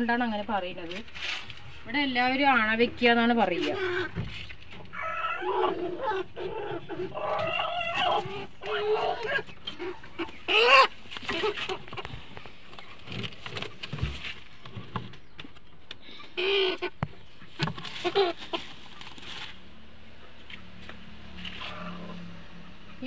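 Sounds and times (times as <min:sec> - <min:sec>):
hen clucking: 0:02.6 - 0:14.2, 0:16.0 - 0:19.2
knocks and scuffs in nest box: 0:11.1 - 0:15.5, 0:17.0 - 0:19.5.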